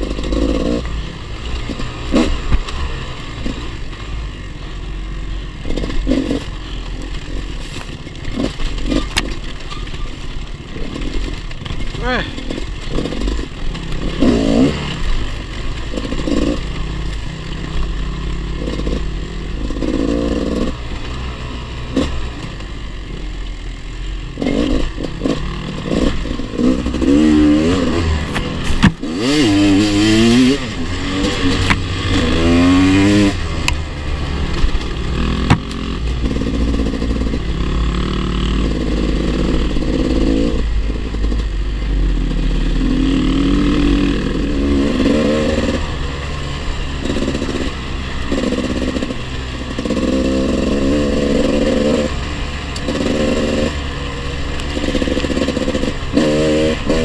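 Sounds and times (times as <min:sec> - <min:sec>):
off-road motorcycle engine revving: 0:00.0 - 0:57.0
bike rattling over stony ground: 0:05.6 - 0:17.7.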